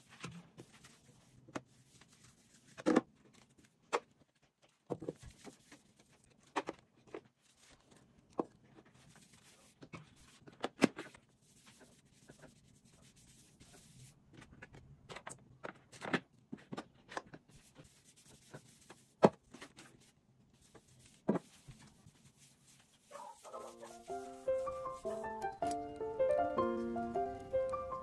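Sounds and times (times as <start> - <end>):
hand wiping tiled countertop: 11.4 - 14.2, 19.8 - 25.3
soft piano music: 23.6 - 28.0.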